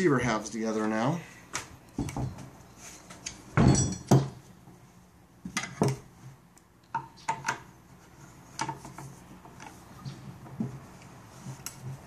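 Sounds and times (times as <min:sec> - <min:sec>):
metal gun parts clanking: 0:03.6 - 0:04.3.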